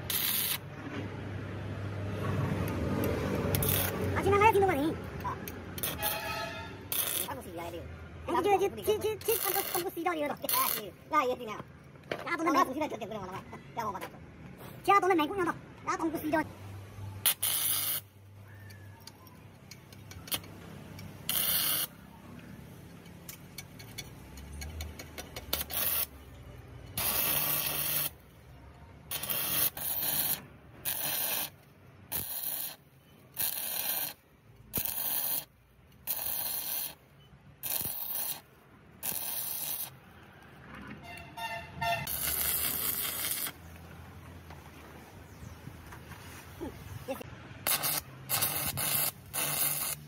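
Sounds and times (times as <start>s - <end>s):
welding arc crackling: 0.0s - 0.7s, 2.7s - 7.6s, 8.8s - 11.0s, 17.2s - 18.1s, 19.8s - 22.0s, 25.0s - 26.2s, 26.9s - 28.4s, 29.1s - 40.2s, 42.0s - 43.8s, 47.6s - 50.0s.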